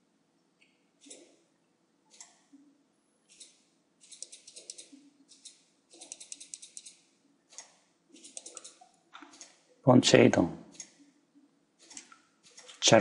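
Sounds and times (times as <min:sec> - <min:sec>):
quick ticks: 0:07.6 - 0:09.6.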